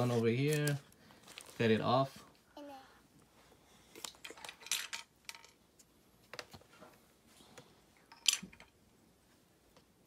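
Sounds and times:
crackly rustling: 0:00.0 - 0:02.6.

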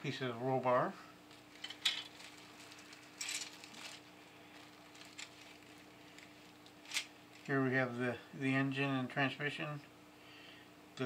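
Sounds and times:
faint steady hum: 0:00.0 - 0:11.0
plastic bag crinkling: 0:01.3 - 0:07.6.

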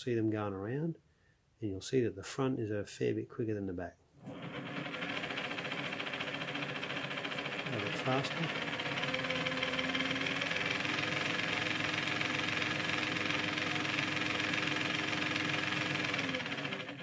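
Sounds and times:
electric motor and gears whining: 0:04.2 - 0:17.0.

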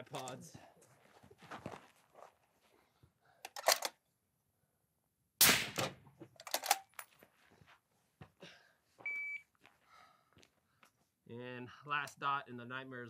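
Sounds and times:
suppressed rifle shots: 0:05.4 - 0:06.0.

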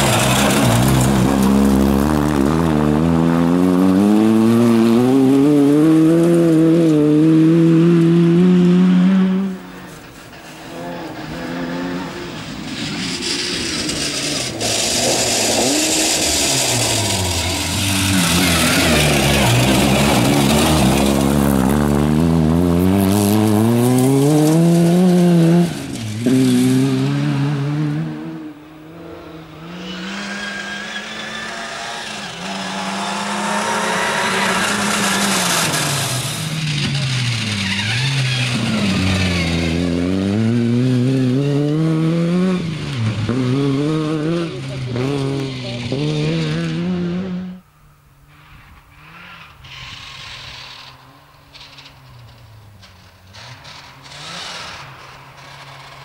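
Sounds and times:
tyres on loose gravel: 0:00.0 - 0:02.7, 0:09.8 - 0:26.6
rally car engine revving: 0:00.0 - 0:47.7, 0:48.3 - 0:56.0.

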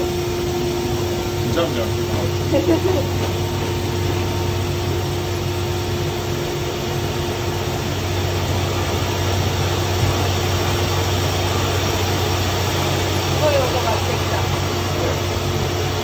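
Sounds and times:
constant low hum: 0:00.0 - 0:16.0
rice polishing machine droning: 0:00.0 - 0:16.0.

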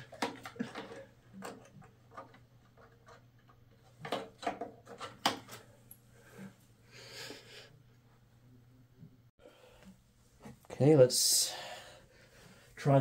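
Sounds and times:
plastic clicks and knocks: 0:00.1 - 0:05.6.

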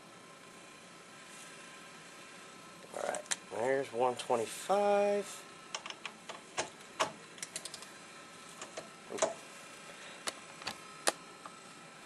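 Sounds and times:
torque wrench clicks and taps: 0:05.7 - 0:06.4, 0:07.0 - 0:07.8.

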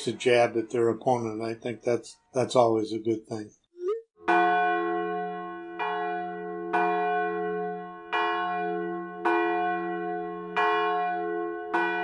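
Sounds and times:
church bell tolling: 0:04.3 - 0:12.0.

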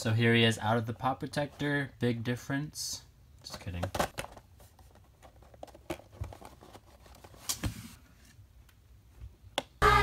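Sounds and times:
cardboard box rustling and clicking: 0:03.8 - 0:08.0.

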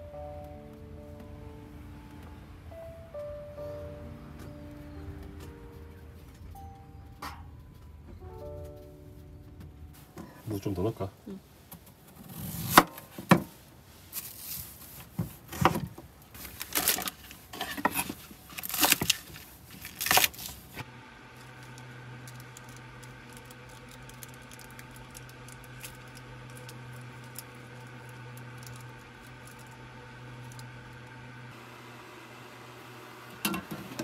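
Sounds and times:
low hum of gas burner: 0:13.6 - 0:34.0.

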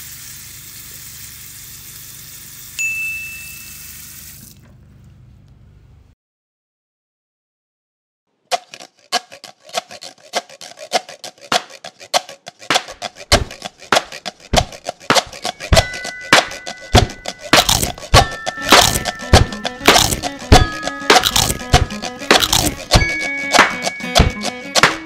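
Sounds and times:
fast ticking percussion: 0:08.5 - 0:25.0.

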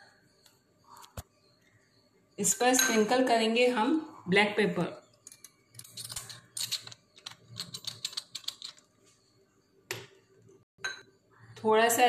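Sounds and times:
pepper shaker clicking and rattling: 0:05.8 - 0:08.9.

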